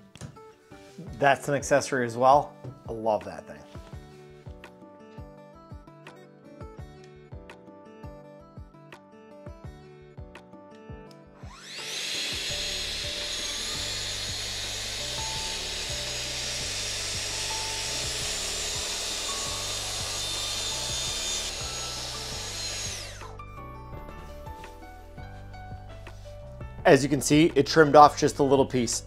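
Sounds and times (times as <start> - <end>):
background music: 0.0 - 29.0
circular saw cutting wood: 11.4 - 23.5.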